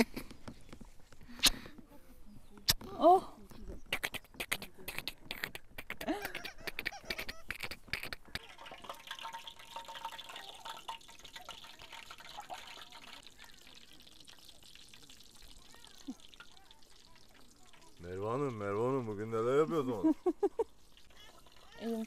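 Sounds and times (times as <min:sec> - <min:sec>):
dough sizzling in hot oil: 0:08.4 - 0:19.2, 0:20.4 - 0:22.0.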